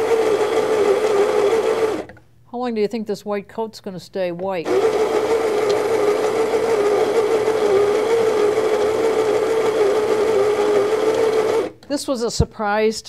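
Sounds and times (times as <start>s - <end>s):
coffee grinder motor humming: 0.0s - 2.1s, 4.6s - 11.8s.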